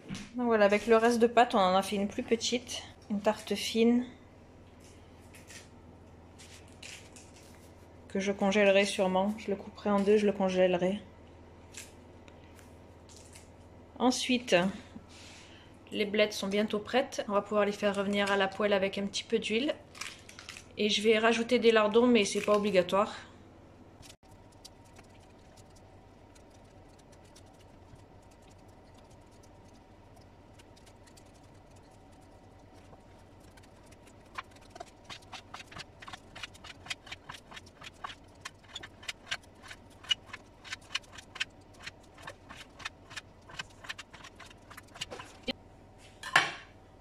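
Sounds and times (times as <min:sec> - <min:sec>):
knife slicing: 0:30.5 - 0:45.4.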